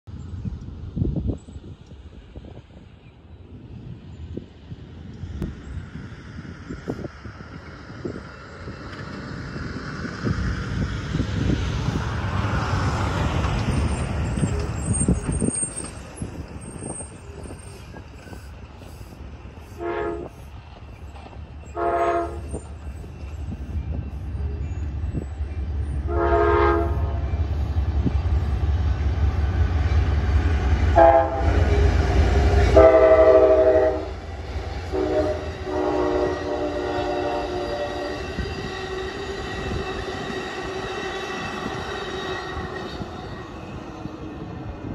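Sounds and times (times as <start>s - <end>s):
diesel locomotive engines rumbling: 0.1s - 44.9s
train air horn blasts: 19.7s - 20.4s, 21.7s - 22.6s, 26.0s - 27.4s, 30.9s - 43.0s.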